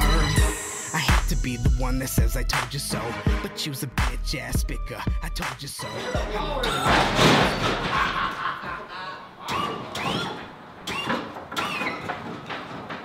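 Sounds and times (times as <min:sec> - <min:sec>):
loud hip hop music: 0:00.0 - 0:07.8.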